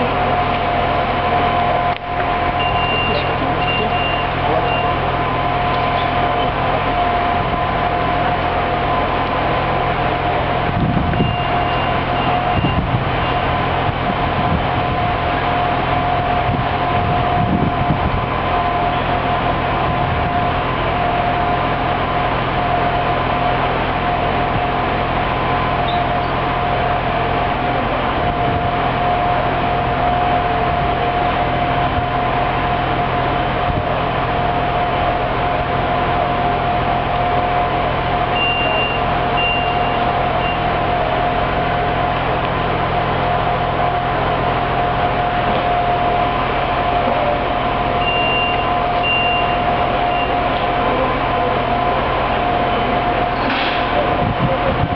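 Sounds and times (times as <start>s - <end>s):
diesel engine idling: 0.0s - 54.9s.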